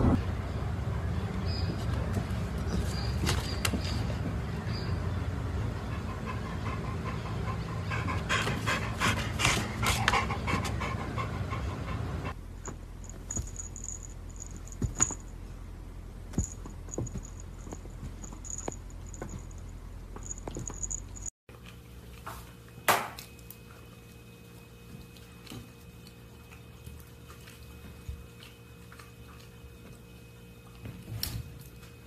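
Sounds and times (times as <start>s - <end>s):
dog panting: 5.6s - 12.4s.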